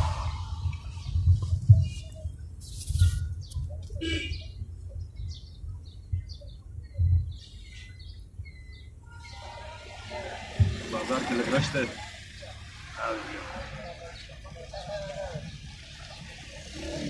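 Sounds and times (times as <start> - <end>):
car driving rumble: 0.0 - 17.0
bird chirps: 0.1 - 9.8.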